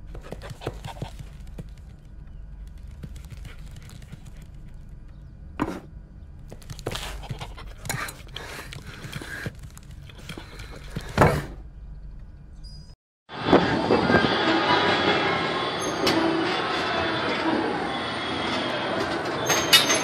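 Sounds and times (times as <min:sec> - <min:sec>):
carousel ride music: 0:13.7 - 0:20.0.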